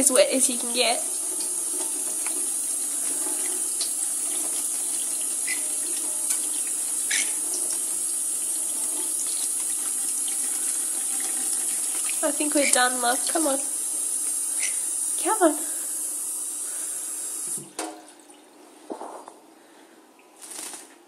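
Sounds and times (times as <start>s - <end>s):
tap water splashing into sink: 1.2s - 8.0s, 17.4s - 18.1s.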